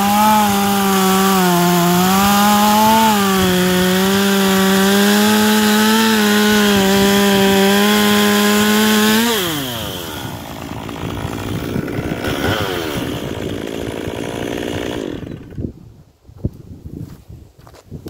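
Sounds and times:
chainsaw idling: 0.0s - 15.6s
chainsaw cutting log: 0.0s - 15.7s.

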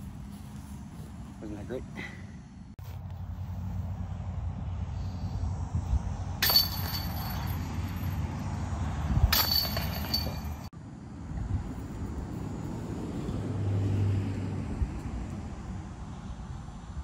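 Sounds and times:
low outdoor rumble: 0.0s - 17.0s
metal clink of basket chains: 6.4s - 8.1s, 9.3s - 10.7s.

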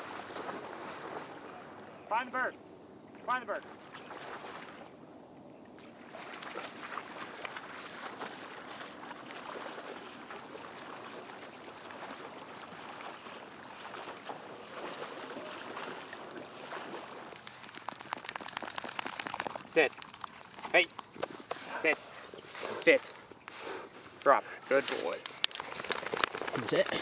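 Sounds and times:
dog splashing in water: 5.9s - 21.2s.

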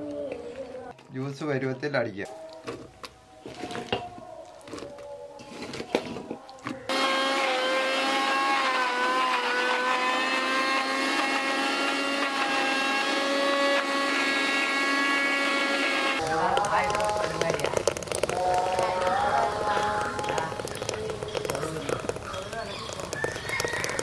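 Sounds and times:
mixer grinder motor humming: 6.9s - 24.0s.

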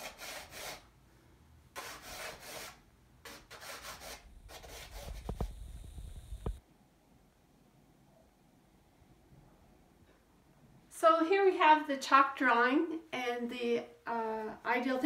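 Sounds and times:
chalk scraping on canvas: 0.0s - 0.8s, 1.8s - 6.6s.

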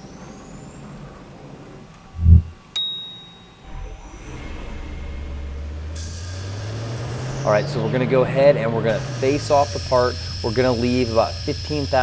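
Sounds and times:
sharp click with high ring: 2.8s - 3.6s
lathe spindle humming: 9.0s - 12.0s.

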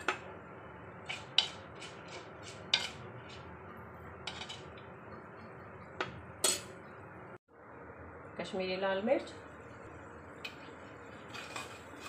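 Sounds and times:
spoon scraping clay pot: 1.0s - 3.5s, 4.2s - 4.8s, 11.2s - 12.0s
spices frying in oil: 9.0s - 12.0s.

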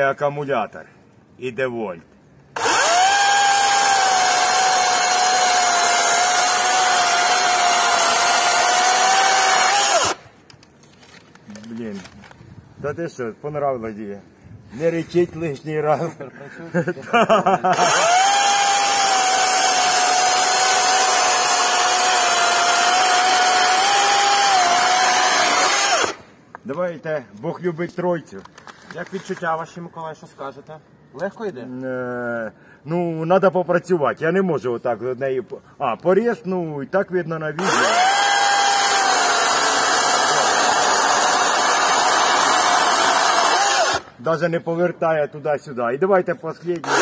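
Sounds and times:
chainsaw cutting log: 2.6s - 10.3s, 17.7s - 26.3s, 37.6s - 44.1s, 46.8s - 47.0s.

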